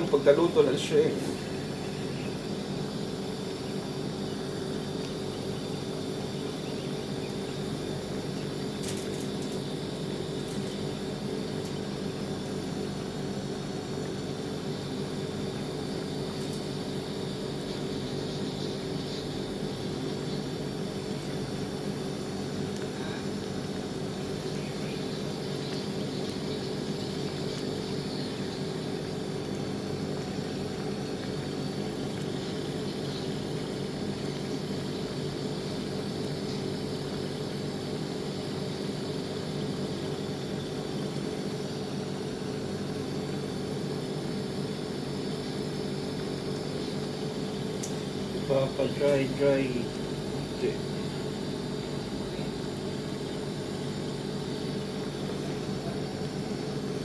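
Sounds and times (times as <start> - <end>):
steady mechanical hum: 0.0 - 57.0
pan simmering and bubbling: 1.2 - 48.6, 49.8 - 57.0.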